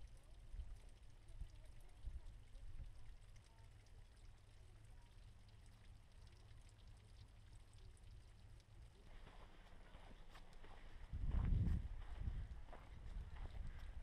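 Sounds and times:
faint low rumble: 0.0 - 14.0
faint gritty noise: 7.6 - 14.0.

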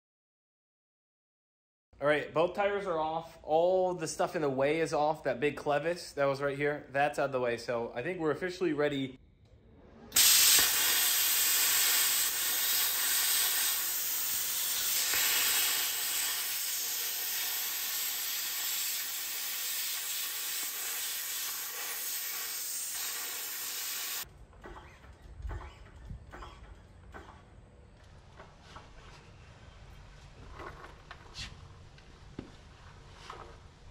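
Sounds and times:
plasma cutter hissing: 10.1 - 24.2.

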